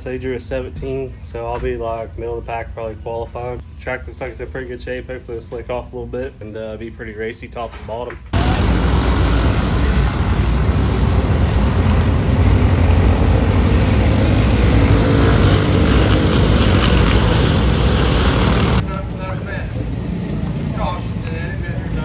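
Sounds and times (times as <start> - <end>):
race car engines droning: 8.3 - 22.0.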